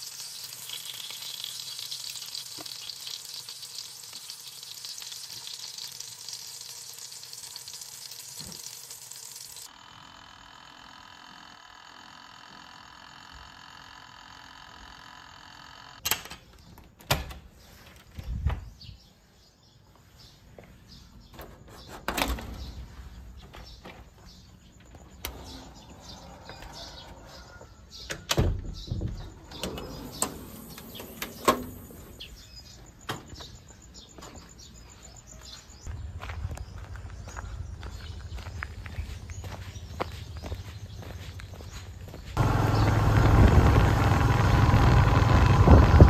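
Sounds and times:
birds chirping faintly: 16.4 - 45.6.

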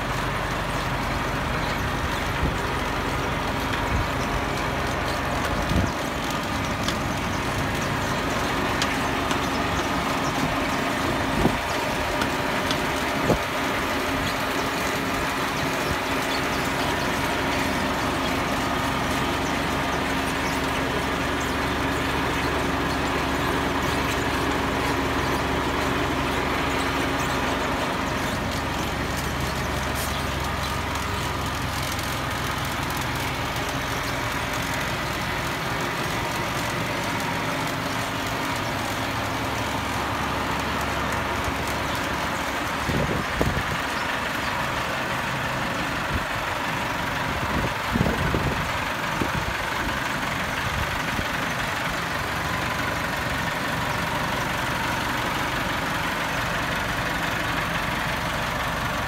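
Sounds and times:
tractor engine idling: 0.0 - 59.0.

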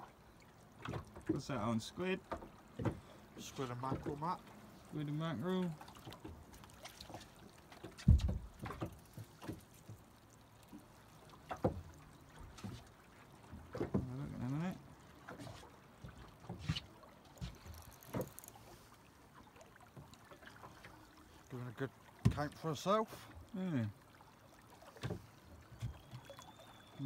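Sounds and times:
faint water noise: 0.0 - 27.0
knocks and bumps on a boat: 0.8 - 4.4, 5.6 - 10.1, 10.7 - 18.4, 22.1 - 23.5, 24.9 - 26.3.

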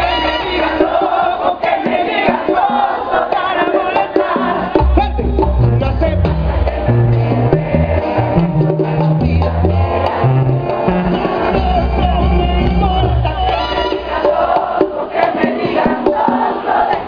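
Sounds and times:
brass band playing through pa: 0.0 - 17.0
tuba bass line: 4.8 - 14.2.

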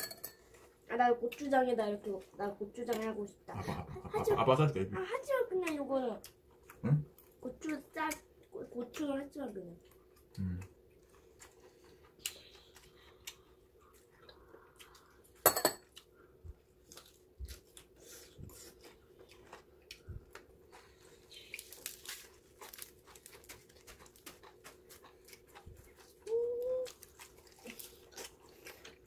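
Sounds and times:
utensils clinking against bowls: 0.0 - 0.4
faint steady hum: 0.0 - 29.0.

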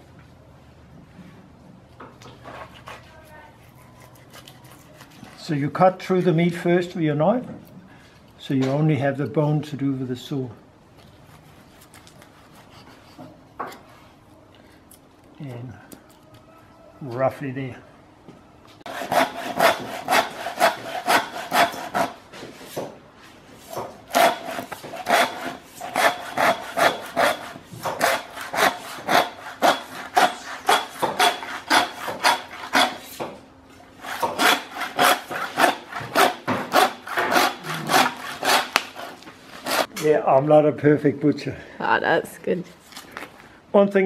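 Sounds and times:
hand saw cutting bone: 2.5 - 5.8, 11.2 - 13.4, 18.9 - 22.2, 23.7 - 33.3, 34.0 - 39.9.

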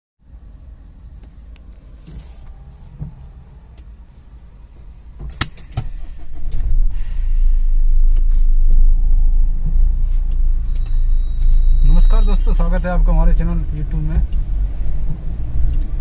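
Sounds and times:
loud deep rumble: 0.2 - 5.2, 5.9 - 10.7
car cabin rumble: 0.3 - 16.0.

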